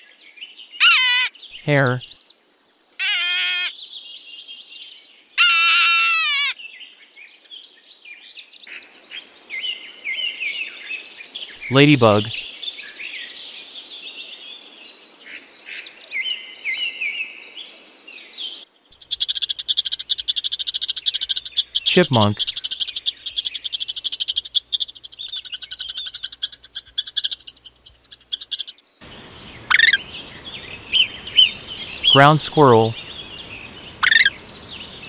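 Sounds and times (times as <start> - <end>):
birds twittering: 10.8 - 12.6, 18.9 - 35.0
squirrel high-pitched chirps: 19.0 - 28.8, 29.7 - 30.0, 34.0 - 34.4.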